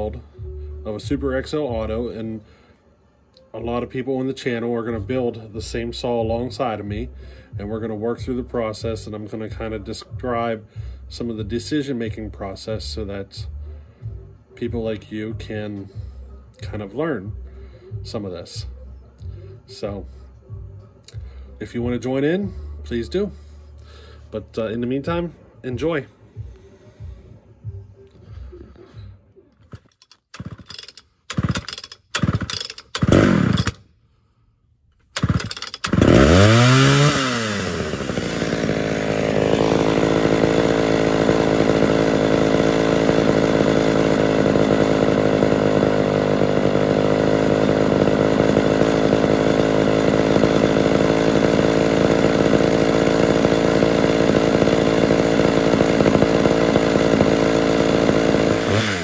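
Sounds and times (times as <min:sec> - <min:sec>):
chainsaw starting and idling: 0:00.0 - 0:02.8, 0:22.3 - 0:25.3, 0:28.1 - 0:34.0, 0:35.0 - 0:59.0.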